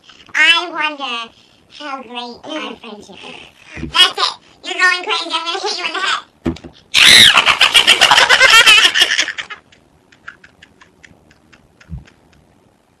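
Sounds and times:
girl shrieking with laughter: 0:07.0 - 0:07.5.

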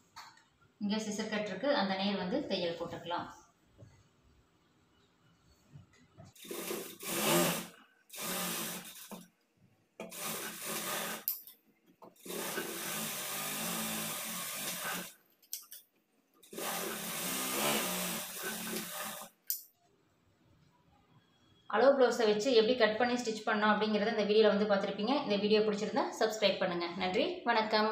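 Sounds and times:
sewing machine stitching: 0:06.4 - 0:09.2, 0:10.0 - 0:11.3, 0:12.2 - 0:15.1, 0:16.5 - 0:19.4.

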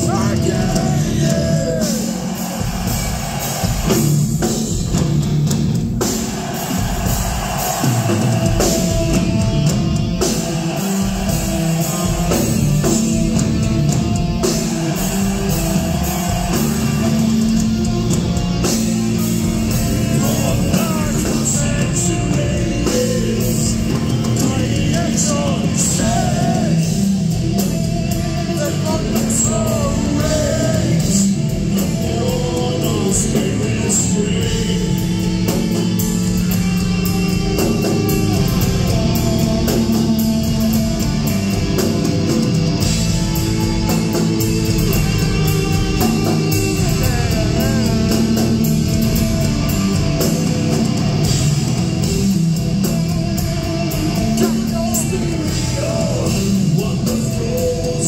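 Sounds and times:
person singing: 0:00.0 - 0:02.4, 0:19.6 - 0:27.1, 0:44.8 - 0:50.8, 0:53.9 - 0:58.0
drum kit: 0:00.0 - 0:58.0
electric guitars: 0:00.0 - 0:58.0.

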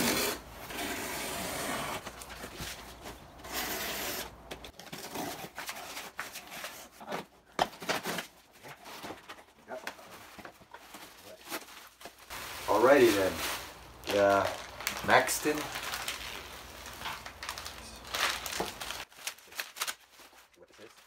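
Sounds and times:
cardboard box scraping: 0:00.0 - 0:04.3.

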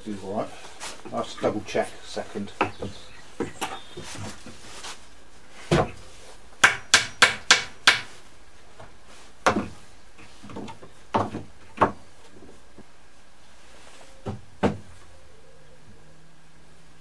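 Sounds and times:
hammer striking nails in wood: 0:06.6 - 0:08.1.

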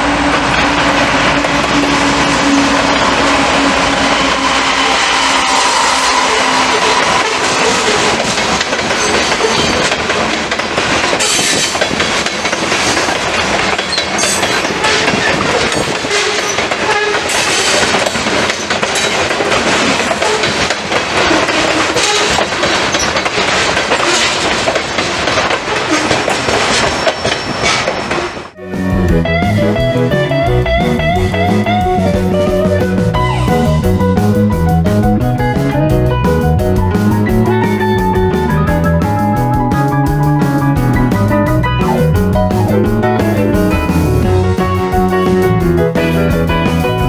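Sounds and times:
wheels clacking over rail joints: 0:00.0 - 0:28.6
locomotive steady tone: 0:00.0 - 0:47.0
train wheels rumbling on rail: 0:00.0 - 0:47.0.

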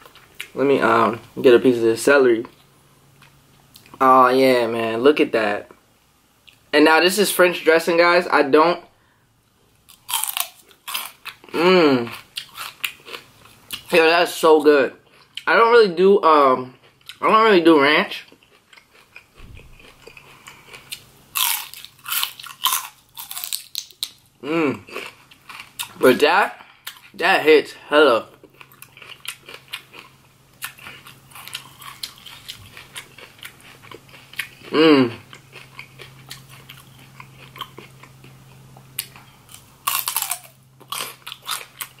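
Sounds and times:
celery crunching: 0:09.9 - 0:13.9, 0:18.1 - 0:24.2, 0:28.4 - 0:34.7, 0:35.3 - 0:42.0.

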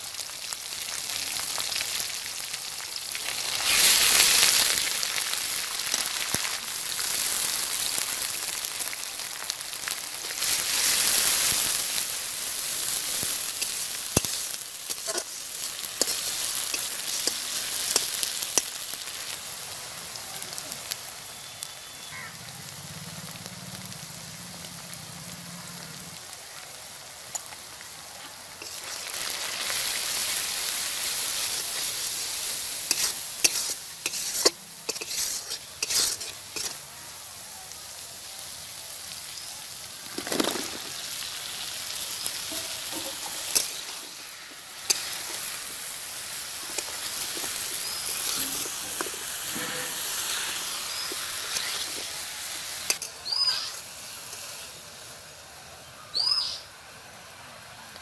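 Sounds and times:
food sizzling in hot oil: 0:00.0 - 0:57.3
metal spatula scraping a wok: 0:12.8 - 0:18.7, 0:28.6 - 0:29.8, 0:31.4 - 0:36.8, 0:42.5 - 0:45.6, 0:46.7 - 0:54.5.

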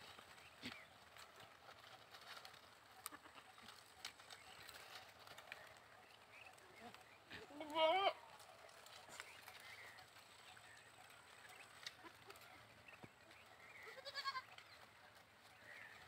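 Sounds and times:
goats bleating: 0:07.3 - 0:08.3, 0:13.8 - 0:14.5.

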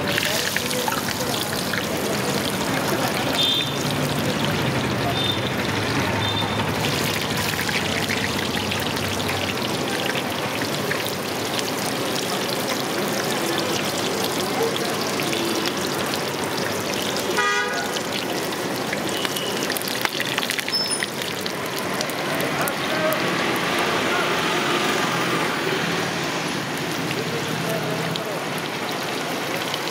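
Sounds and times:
roadside traffic: 0:00.0 - 0:29.9
vehicle horn tooting: 0:03.3 - 0:03.9, 0:05.1 - 0:05.5, 0:06.1 - 0:06.8, 0:17.0 - 0:18.0, 0:19.0 - 0:19.7.

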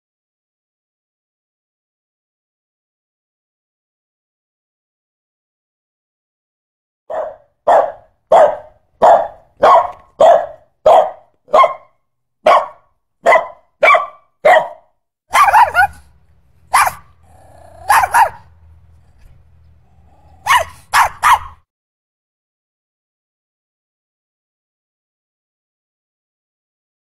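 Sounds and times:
small dog barking: 0:07.1 - 0:19.2, 0:20.0 - 0:21.6
dog growling: 0:16.7 - 0:20.9.

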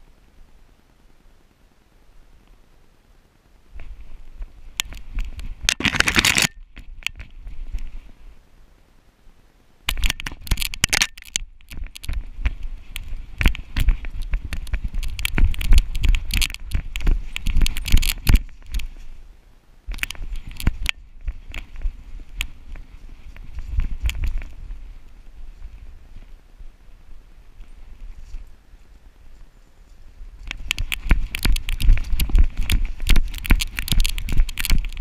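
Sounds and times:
camera knocking and rattling: 0:04.8 - 0:07.8, 0:09.9 - 0:19.0, 0:19.9 - 0:24.6, 0:30.4 - 0:35.0.

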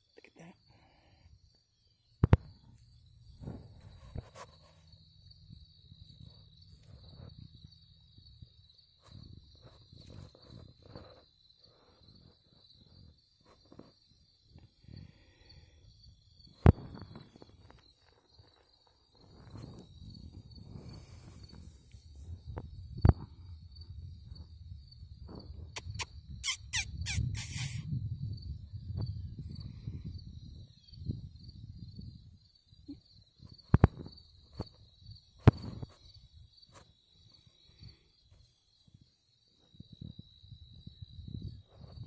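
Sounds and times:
insects chirping in fast trill: 0:00.0 - 0:42.0
wind rumble on microphone: 0:02.2 - 0:11.3, 0:15.9 - 0:18.5, 0:19.1 - 0:36.8, 0:38.8 - 0:42.0.

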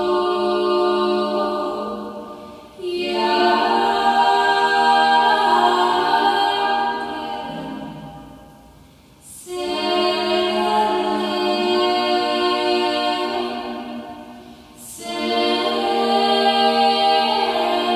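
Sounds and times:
women singing a cappella harmony: 0:00.0 - 0:17.9.

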